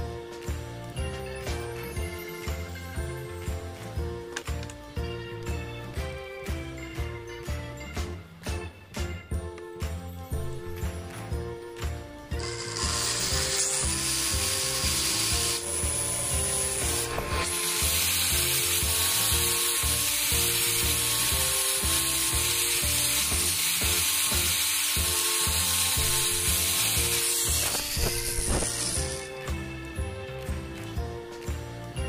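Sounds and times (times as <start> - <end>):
angle grinder sanding wood: 12.3 - 29.4.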